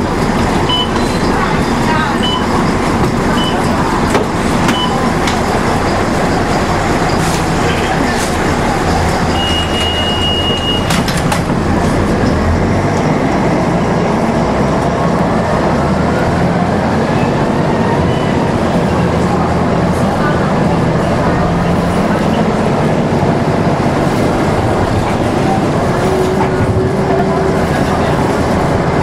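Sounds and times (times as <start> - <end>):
bus diesel engine droning: 0.0 - 29.0
high steady beep: 0.7 - 1.2, 2.2 - 2.6, 4.7 - 5.1, 9.3 - 10.9.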